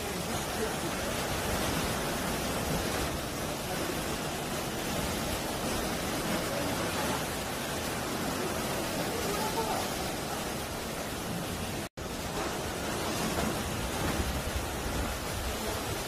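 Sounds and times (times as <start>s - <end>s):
waves breaking on rocks: 0.0s - 16.0s.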